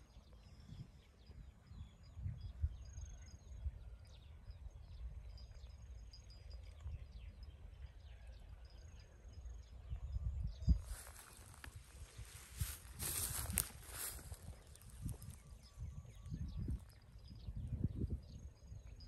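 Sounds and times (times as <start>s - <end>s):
small birds chirping: 4.3s - 19.0s.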